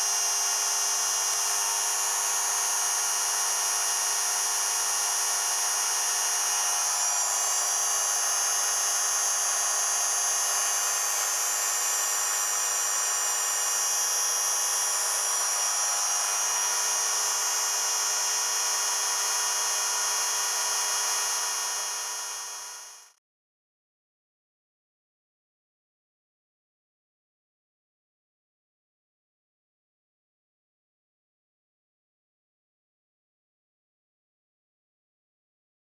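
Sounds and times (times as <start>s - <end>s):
motor high-pitched whine: 0.0s - 23.2s.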